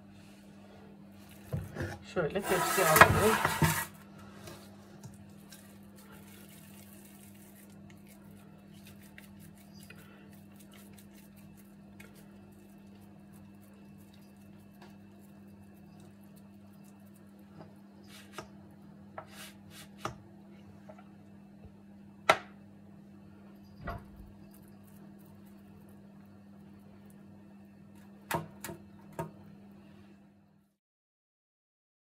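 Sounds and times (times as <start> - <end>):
steady low hum: 0.0 - 30.8
hands handling dough: 1.1 - 21.2.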